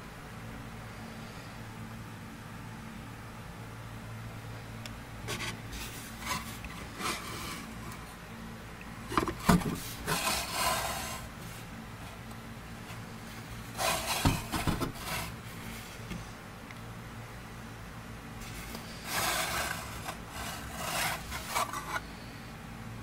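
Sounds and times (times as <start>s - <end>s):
steady low hum: 0.0s - 23.0s
rubbing and scraping of model plane: 5.3s - 8.2s, 9.1s - 12.2s, 12.8s - 16.0s, 18.4s - 22.2s.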